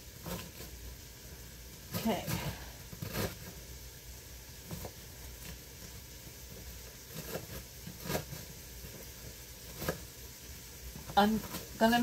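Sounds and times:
faint steady hiss: 0:00.0 - 0:12.0
knife cutting on wooden board: 0:00.2 - 0:00.7, 0:01.9 - 0:03.6, 0:07.0 - 0:08.6, 0:09.7 - 0:10.1.

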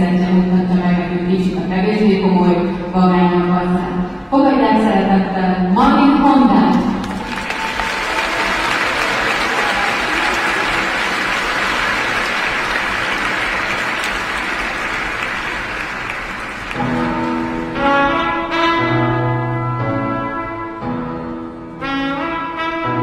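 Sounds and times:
crowd applauding: 0:07.0 - 0:17.6
instrumental music: 0:16.3 - 0:23.0.

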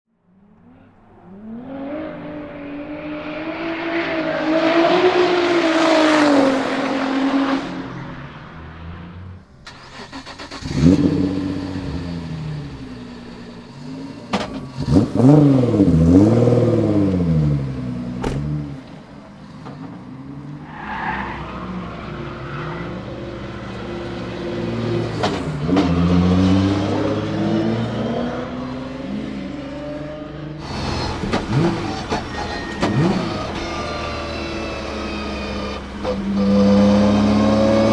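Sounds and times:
car engine revving: 0:00.4 - 0:37.9.

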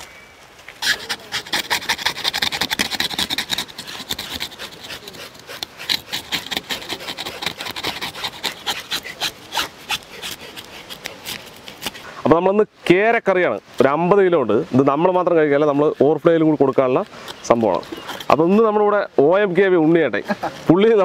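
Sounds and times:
knife scraping fish skin: 0:00.8 - 0:12.1, 0:16.0 - 0:18.5.

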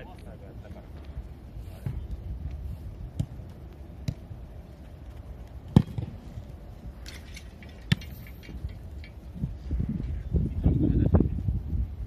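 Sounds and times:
steady low rumble: 0:00.0 - 0:12.0
football kick thuds: 0:03.1 - 0:04.3, 0:05.7 - 0:06.2.

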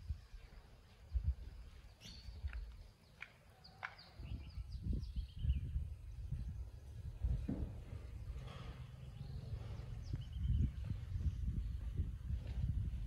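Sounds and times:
birds chirping: 0:00.2 - 0:12.7
low rumble: 0:05.8 - 0:13.0.

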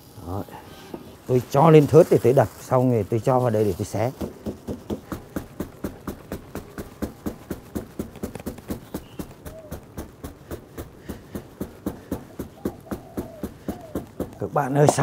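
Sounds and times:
wooden pestle pounding meat: 0:04.1 - 0:15.0.

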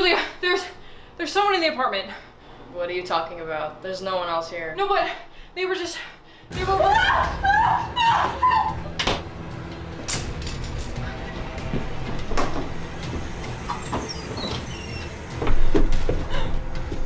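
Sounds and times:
steady low rumble: 0:06.2 - 0:17.0
sliding glass door scraping and knocking: 0:11.0 - 0:17.0.

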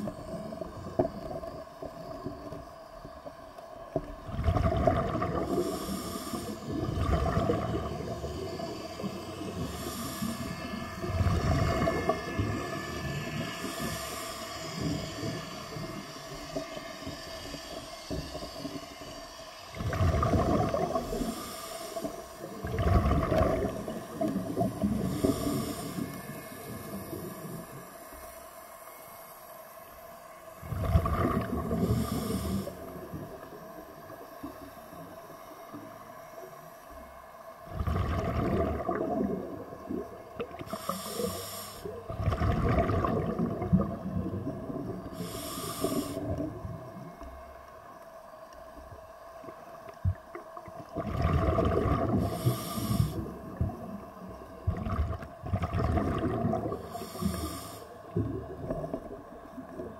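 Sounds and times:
faint steady hum: 0:00.0 - 0:59.9
bubbling exhalations underwater: 0:04.3 - 0:05.9, 0:06.7 - 0:08.1, 0:19.8 - 0:21.2, 0:22.6 - 0:25.5, 0:30.6 - 0:32.1, 0:37.7 - 0:40.7, 0:42.0 - 0:45.2, 0:50.9 - 0:52.5, 0:54.6 - 0:57.0
regulator inhalation hiss: 0:05.5 - 0:06.9, 0:07.6 - 0:19.8, 0:20.9 - 0:22.6, 0:23.7 - 0:30.6, 0:31.6 - 0:37.0, 0:40.6 - 0:42.1, 0:45.0 - 0:46.5, 0:52.2 - 0:54.5, 0:56.8 - 0:58.3.

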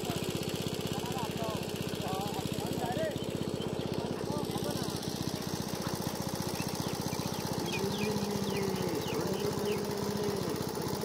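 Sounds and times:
small engine thudding: 0:00.0 - 0:11.0
long rising and falling calls: 0:04.8 - 0:11.0.

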